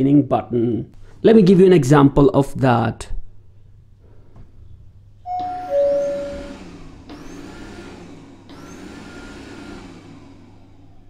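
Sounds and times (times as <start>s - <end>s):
two-note falling beep: 5.3s - 6.8s
robot vacuum fan and brushes whirring: 5.3s - 11.0s.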